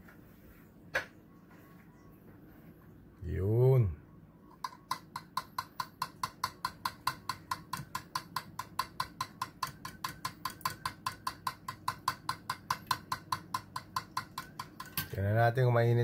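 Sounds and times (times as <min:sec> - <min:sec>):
fork beating eggs in ceramic bowl: 0:04.6 - 0:15.2.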